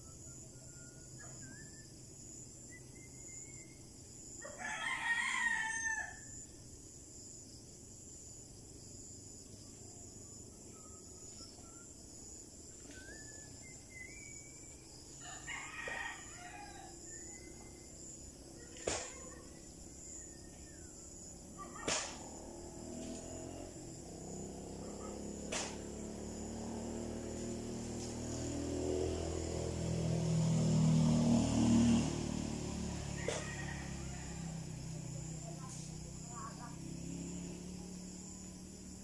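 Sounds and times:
small bird chirps: 0.0s - 3.9s, 10.4s - 15.2s
rooster crowing: 4.4s - 6.4s, 15.2s - 17.9s, 33.0s - 34.9s.

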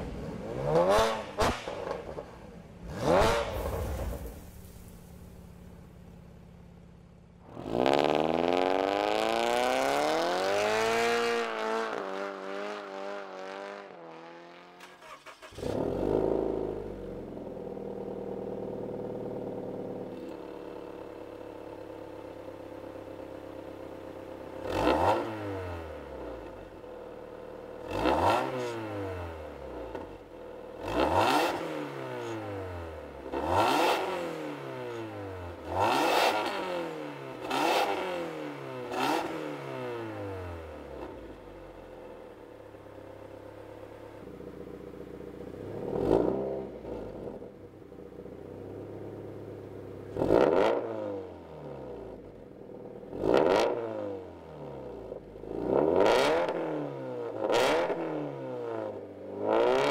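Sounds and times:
car engine starting and idling: 1.6s - 7.4s, 14.8s - 20.1s.

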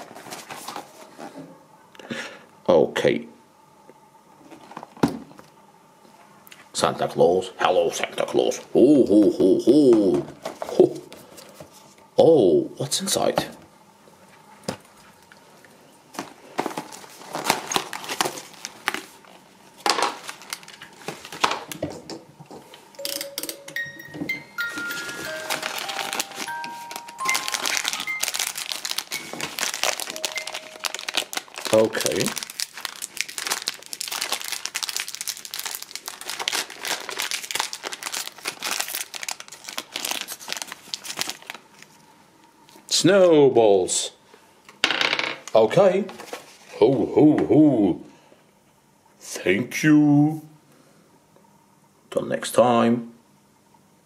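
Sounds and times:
candy wrappers crinkling: 16.6s - 21.8s, 24.6s - 42.0s
chiming melody: 23.0s - 31.2s.

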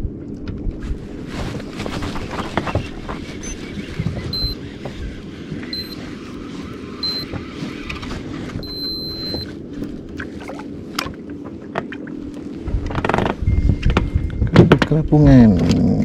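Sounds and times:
wind on microphone: 0.0s - 8.8s, 12.6s - 15.2s
high electronic beeps: 2.7s - 4.7s, 5.6s - 6.1s, 7.0s - 7.4s, 8.6s - 9.5s
water rumbling: 9.4s - 14.5s.

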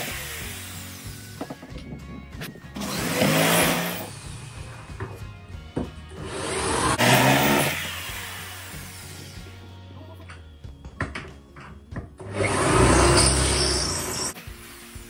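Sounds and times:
electric drill running: 0.0s - 1.4s, 6.2s - 9.4s.

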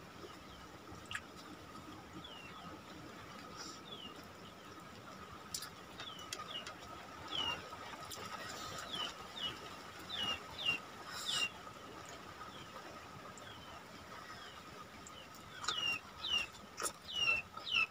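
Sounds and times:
bird chirping: 8.4s - 11.6s, 13.4s - 17.9s.

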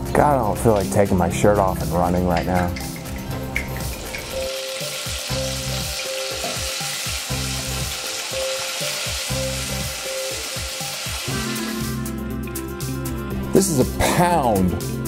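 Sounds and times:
song with bass and chords: 9.3s - 15.0s.

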